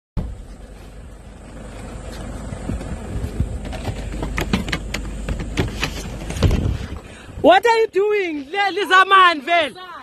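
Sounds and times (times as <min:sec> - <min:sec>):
vehicle rumble inside cabin: 0:00.2 - 0:07.4
sharp clicks and knocks: 0:02.8 - 0:06.7.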